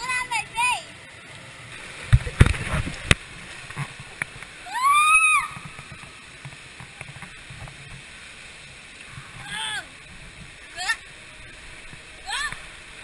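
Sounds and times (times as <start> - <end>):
water slide rushing: 1.7 - 7.2
child squealing: 4.6 - 5.6.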